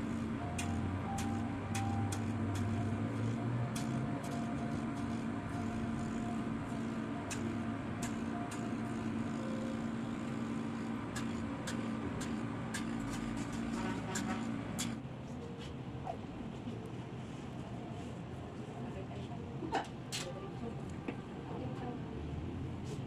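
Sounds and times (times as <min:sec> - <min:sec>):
small electric motor humming: 0:00.0 - 0:14.9.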